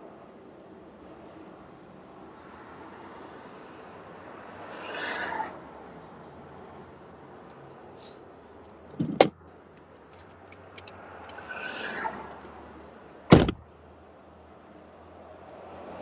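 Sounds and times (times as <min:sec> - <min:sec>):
low car background noise: 0:00.0 - 0:16.0
car door thumps: 0:13.3 - 0:13.6.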